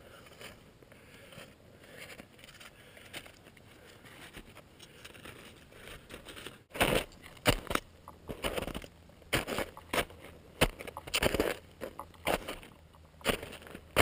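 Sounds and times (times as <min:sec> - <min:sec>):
boots crunching in snow: 0:06.7 - 0:14.0.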